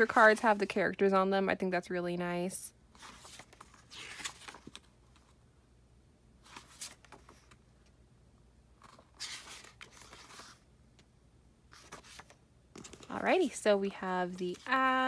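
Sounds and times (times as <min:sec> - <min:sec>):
pages turning: 0:03.0 - 0:05.3, 0:06.4 - 0:07.6, 0:08.8 - 0:10.6, 0:11.7 - 0:13.4, 0:14.3 - 0:15.0.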